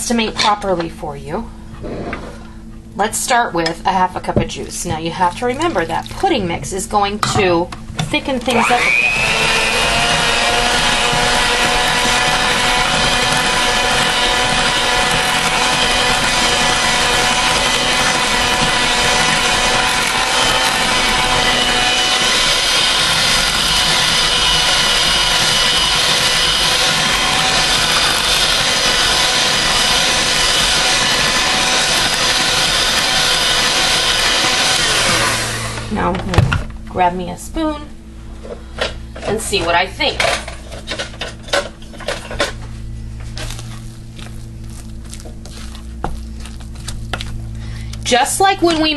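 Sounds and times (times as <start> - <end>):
electric hand mixer whining: 8.2 - 36.1.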